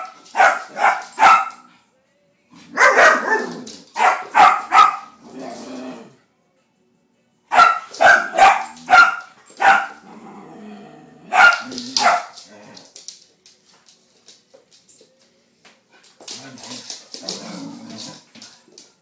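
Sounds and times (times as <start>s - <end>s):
puppy barking: 0.0s - 1.7s, 2.7s - 5.2s, 7.5s - 10.0s, 11.2s - 12.4s
dog growling: 5.2s - 6.2s, 10.0s - 11.3s, 16.5s - 18.3s.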